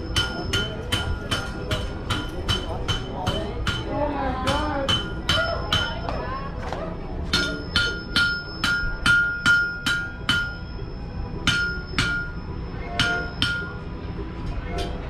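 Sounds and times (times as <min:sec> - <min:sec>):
hammer striking iron on anvil: 0:00.0 - 0:06.2, 0:07.3 - 0:13.9.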